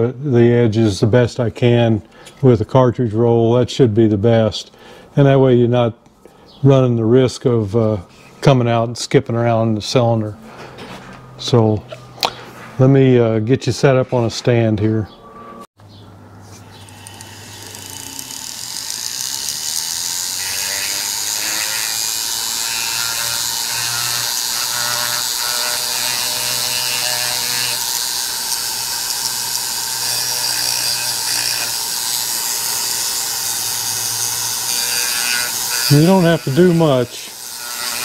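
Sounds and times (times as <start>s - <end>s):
rotary grinder gritty hiss: 16.5s - 38.0s.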